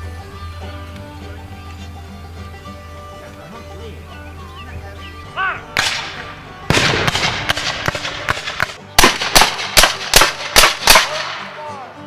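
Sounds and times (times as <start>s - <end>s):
muskets firing: 5.8s - 11.6s.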